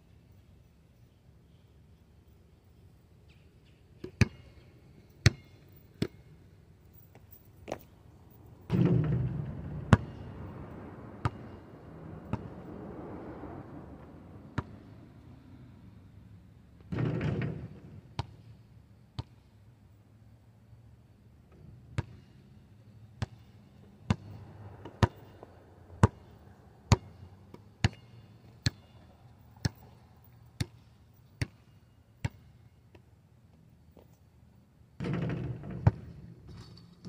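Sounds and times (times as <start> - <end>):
basketball bouncing on asphalt: 4.0 - 4.6, 5.2 - 6.3, 8.6 - 10.3, 11.1 - 12.6, 14.5 - 15.0, 16.8 - 19.5, 21.5 - 34.2, 35.0 - 36.6
basketball hoop rattling: 8.6 - 10.3, 16.9 - 17.9, 35.0 - 37.0.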